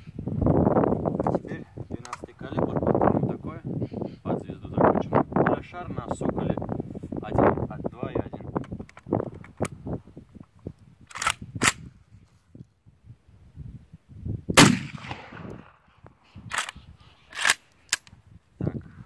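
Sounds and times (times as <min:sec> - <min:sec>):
gun action metallic clicks: 0:11.1 - 0:11.9, 0:14.6 - 0:15.7, 0:16.5 - 0:18.2
shotgun shot with echo: 0:14.6 - 0:15.8.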